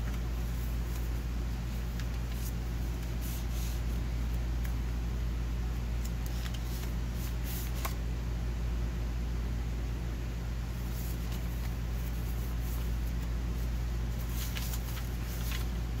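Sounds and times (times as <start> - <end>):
paper pages rustling: 0.0 - 4.8, 6.0 - 8.0, 10.7 - 16.0
steady low hum: 0.0 - 16.0.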